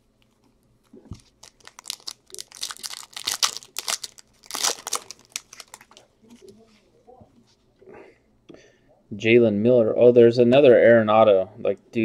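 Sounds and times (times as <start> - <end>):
foil wrapper tearing and crinkling: 1.2 - 6.0.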